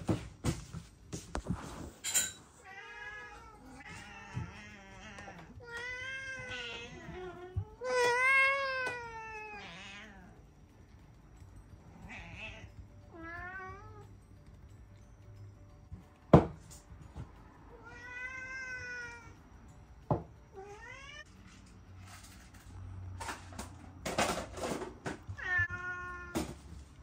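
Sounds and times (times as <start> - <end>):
cats meowing: 2.6 - 10.5, 11.8 - 14.1, 17.7 - 19.4, 20.5 - 21.7, 25.0 - 26.8.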